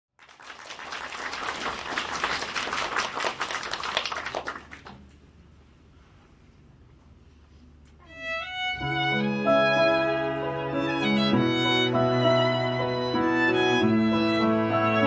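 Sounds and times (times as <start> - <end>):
audience applauding: 0.2 - 5.2.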